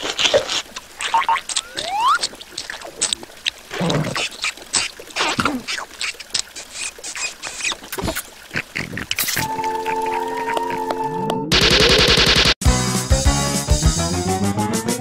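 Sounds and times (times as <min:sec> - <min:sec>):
clicky comic sound effects: 0:01.1 - 0:02.3.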